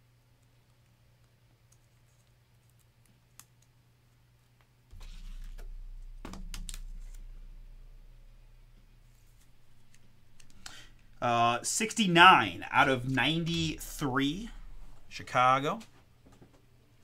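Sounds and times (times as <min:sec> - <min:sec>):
low rumble: 0:04.9 - 0:16.0.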